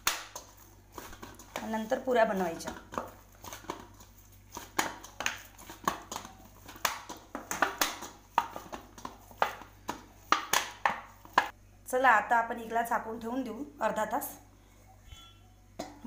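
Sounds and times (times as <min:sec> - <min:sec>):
dough slapping in steel bowl: 0:00.0 - 0:11.6.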